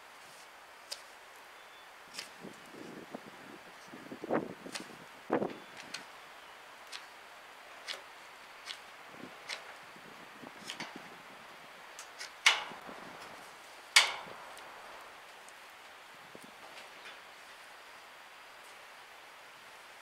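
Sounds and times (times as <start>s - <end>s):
sharp wood cracks: 7.8s - 9.7s, 12.0s - 14.7s.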